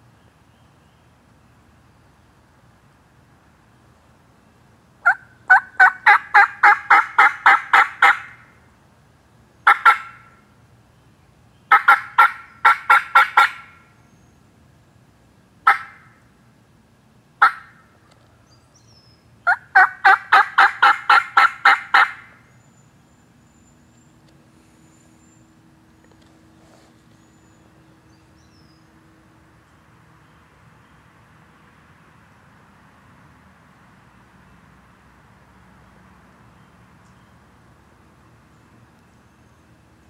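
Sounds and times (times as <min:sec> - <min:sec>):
turkey clucks: 0:05.0 - 0:08.4, 0:09.6 - 0:10.2, 0:11.7 - 0:13.7, 0:15.6 - 0:16.0, 0:17.4 - 0:17.8, 0:19.5 - 0:22.3
turkey yelping: 0:05.0 - 0:08.4, 0:09.6 - 0:10.3, 0:11.7 - 0:13.8, 0:15.6 - 0:16.1, 0:17.4 - 0:17.8, 0:19.5 - 0:22.4.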